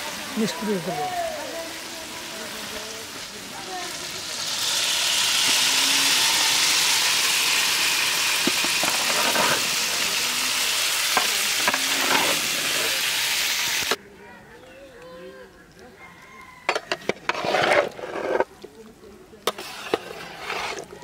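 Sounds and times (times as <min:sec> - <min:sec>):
hot masala sizzling: 0:00.0 - 0:14.0, 0:16.6 - 0:21.0
scraping in metal wok: 0:08.3 - 0:10.0, 0:11.1 - 0:13.1, 0:16.7 - 0:18.5, 0:19.5 - 0:21.0.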